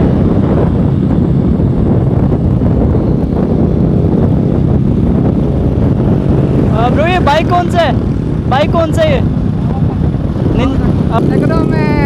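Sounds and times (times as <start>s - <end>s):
motorcycle engines running: 0.0s - 12.0s
wind rushing over microphone: 0.0s - 12.0s.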